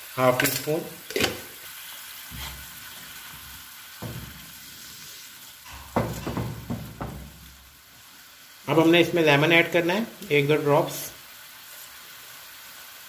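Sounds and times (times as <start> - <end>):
sauce bubbling and sizzling in pan: 0.0 - 13.0
wooden spoon knocking on pan: 3.3 - 4.6, 5.7 - 7.7.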